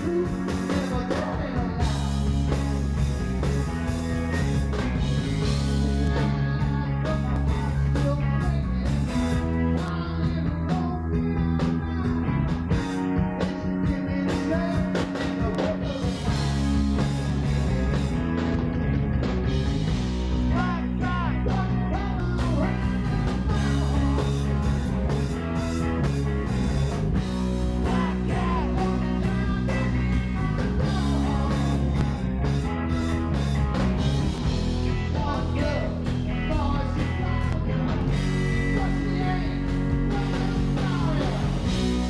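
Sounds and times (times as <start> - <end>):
live rock band playing: 0.0 - 42.0
lead guitar bending notes: 22.0 - 42.0.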